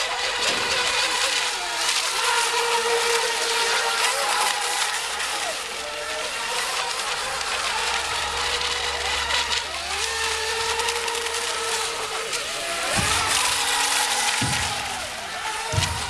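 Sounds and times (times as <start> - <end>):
electric boat motors whining: 0.0 - 16.0
low thuds: 12.9 - 16.0.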